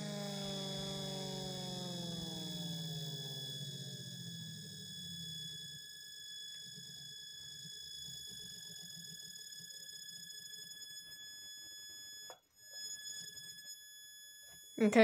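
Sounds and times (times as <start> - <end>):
low rumble of coasting rotor: 0.0 - 5.8
siren winding down wail: 0.0 - 15.0
faint high-pitched tone: 12.7 - 15.0.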